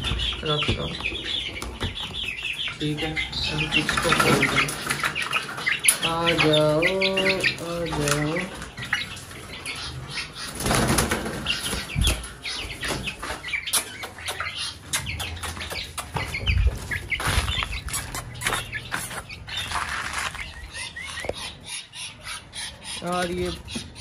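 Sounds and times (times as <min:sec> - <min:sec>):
chicks chirping: 0:00.0 - 0:24.0
chickens flapping wings: 0:10.5 - 0:12.2.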